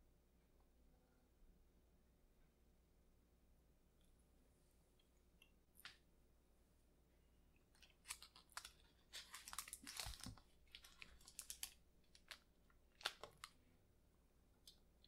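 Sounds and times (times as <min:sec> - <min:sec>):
paper liner crackling: 0:07.8 - 0:13.6.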